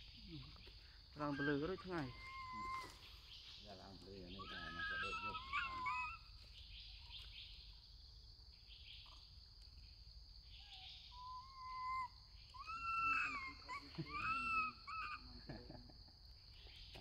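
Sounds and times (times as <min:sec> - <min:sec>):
forest insects droning: 0:00.0 - 0:17.0
macaque coo calls: 0:00.2 - 0:03.2, 0:04.0 - 0:06.3, 0:10.5 - 0:15.8.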